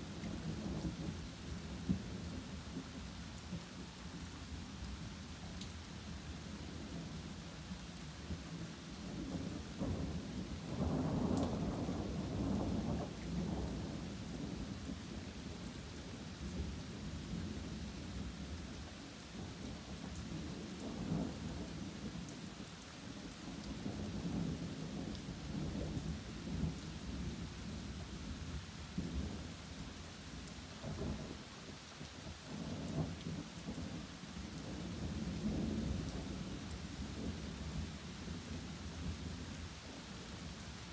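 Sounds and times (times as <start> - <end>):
rain falling on woodland: 0.0 - 40.9.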